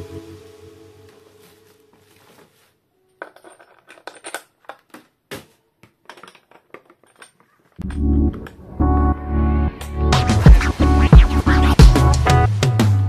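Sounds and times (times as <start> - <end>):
background music: 0.0 - 2.2, 7.8 - 13.0
plastic packaging rustling: 1.2 - 7.8
plastic parts clicking and knocking: 3.2 - 8.6.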